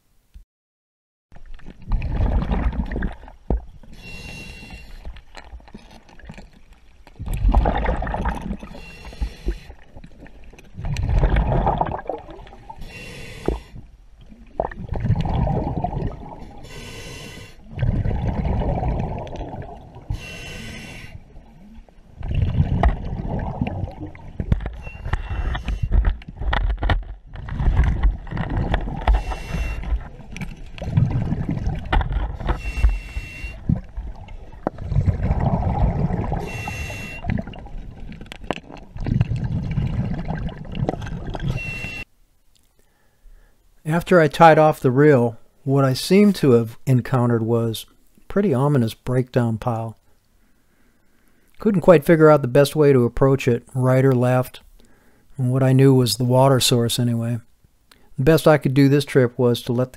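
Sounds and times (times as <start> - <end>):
exhaled bubbles rushing: 1.6 - 3.4, 7.2 - 8.8, 9.9 - 12.8, 14.2 - 16.7, 17.6 - 20.2, 21.2 - 25.6, 27.4 - 32.8, 33.5 - 42.0
regulator hissing inhale: 3.9 - 5.1, 8.7 - 9.8, 12.8 - 13.8, 16.6 - 17.6, 20.1 - 21.2, 29.2 - 30.0, 32.5 - 33.6, 36.4 - 37.3, 54.8 - 55.3.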